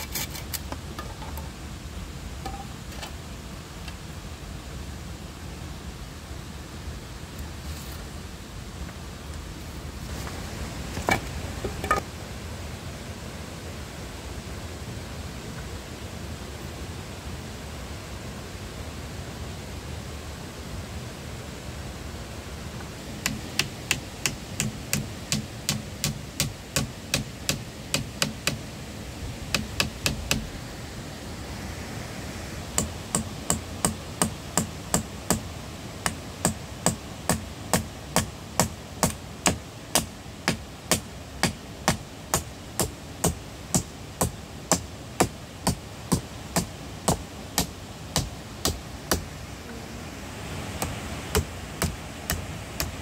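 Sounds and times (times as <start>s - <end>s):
hand tool knocking on wood: 23.2s - 28.6s.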